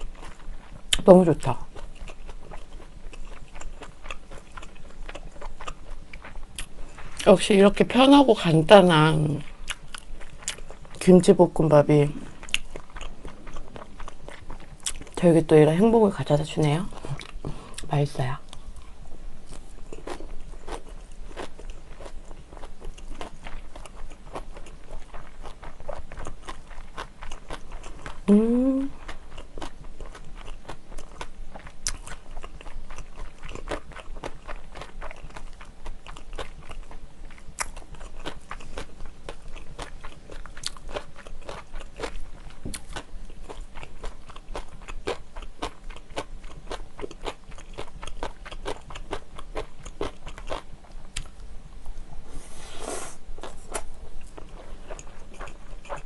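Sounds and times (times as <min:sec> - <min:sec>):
close chewing food: 0:00.0 - 0:52.1, 0:53.2 - 0:56.0
person humming: 0:28.3 - 0:29.0.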